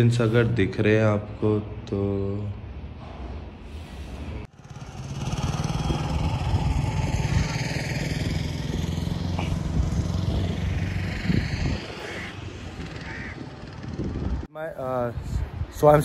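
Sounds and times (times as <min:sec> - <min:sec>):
vehicle engine running: 0:04.4 - 0:14.5.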